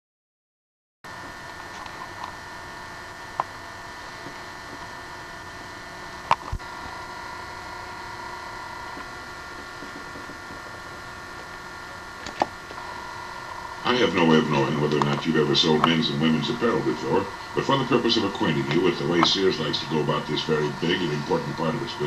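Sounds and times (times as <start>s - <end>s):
vinyl record surface hiss: 1.1s - 22.0s
vinyl record pops: 3.3s - 16.3s.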